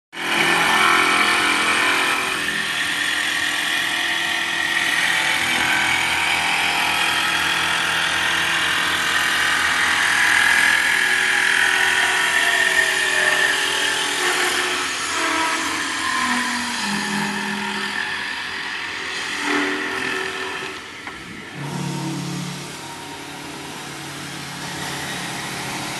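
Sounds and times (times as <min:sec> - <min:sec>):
high machine whine: 0:00.2 - 0:25.9
wood lathe cutting: 0:00.2 - 0:25.9.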